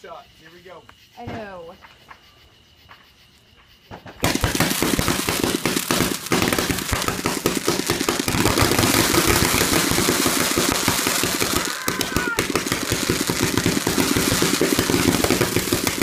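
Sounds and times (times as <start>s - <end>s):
firework cake firing rapid shots: 4.2s - 16.0s
firework crackling: 4.2s - 16.0s.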